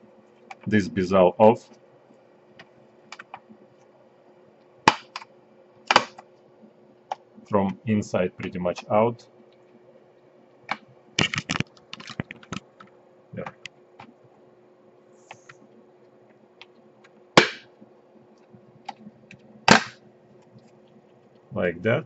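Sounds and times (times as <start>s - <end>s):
plastic clips snapping loose: 5.9s - 6.2s.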